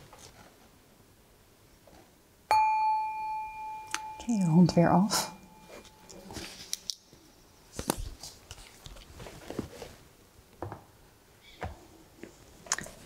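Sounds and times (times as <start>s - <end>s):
notebook pages rustling: 7.7s - 10.1s.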